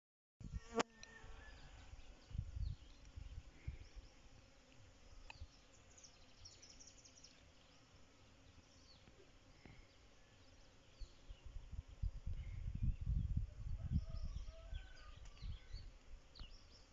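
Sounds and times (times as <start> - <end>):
bee buzzing: 0.4 - 12.6
low wind rumble: 11.4 - 15.7.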